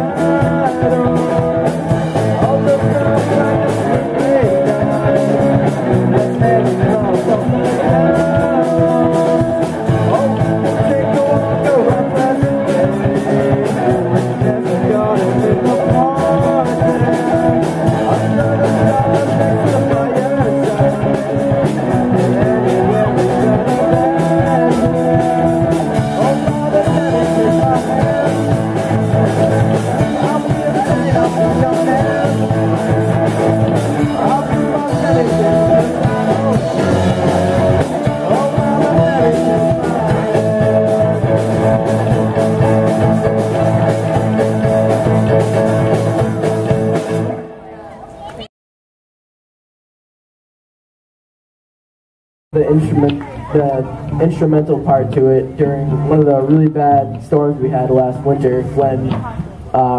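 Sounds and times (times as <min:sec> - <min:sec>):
rock band playing: 0:00.0 - 0:47.6.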